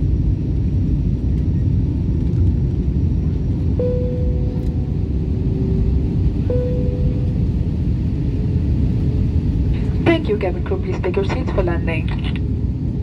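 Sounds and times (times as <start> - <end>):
airliner cabin roar: 0.0 - 13.0
steady tone: 3.6 - 12.1.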